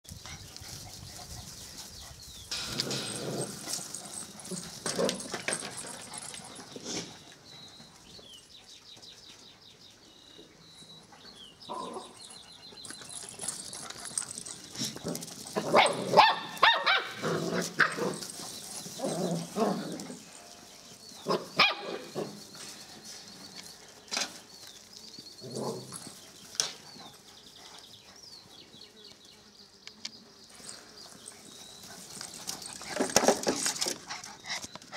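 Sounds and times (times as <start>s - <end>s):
puppies barking and yipping: 0.3s - 8.1s, 11.6s - 24.0s, 30.6s - 34.9s.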